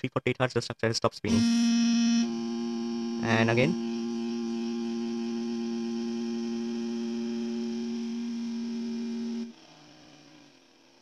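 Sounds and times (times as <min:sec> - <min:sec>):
two steady sine tones: 0:01.3 - 0:09.6.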